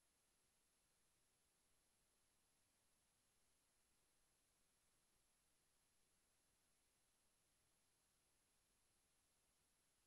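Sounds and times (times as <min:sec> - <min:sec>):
faint steady hiss: 0:00.0 - 0:10.0.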